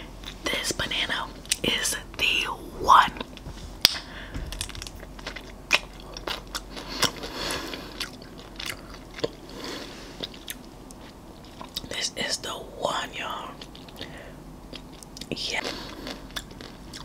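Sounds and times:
chewing mouth sounds: 4.6 - 9.6.

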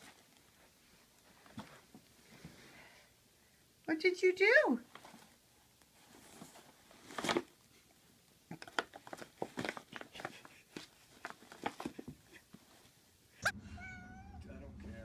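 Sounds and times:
paper bag crinkling: 6.0 - 7.6, 8.6 - 12.8.

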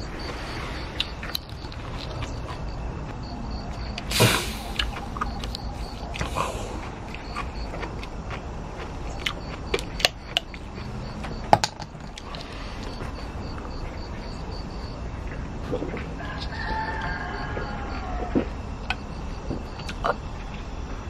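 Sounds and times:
rooster crowing: 16.2 - 18.6.

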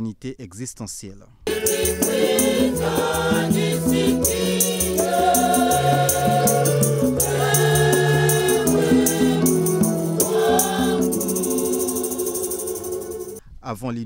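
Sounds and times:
drum beat: 1.5 - 12.3
women's choir singing: 1.5 - 13.4.

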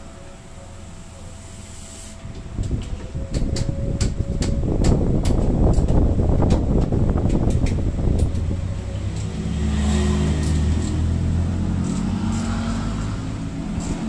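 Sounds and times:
engine running: 0.0 - 14.0
hand tools clicking on metal: 7.2 - 14.0.

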